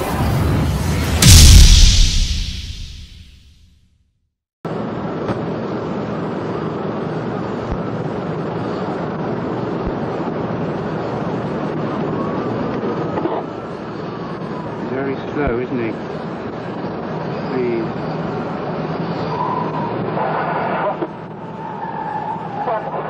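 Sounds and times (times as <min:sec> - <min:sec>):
jet engines rushing: 0:00.0 - 0:03.0.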